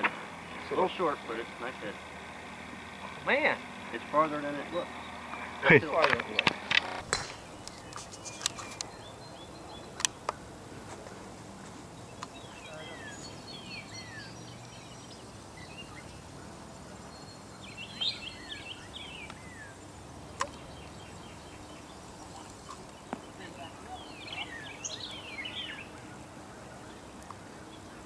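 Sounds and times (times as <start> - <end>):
steady outdoor hiss: 0.0 - 28.0
songbirds whistling: 2.8 - 10.5, 11.8 - 28.0
sharp clicks: 5.3 - 8.9.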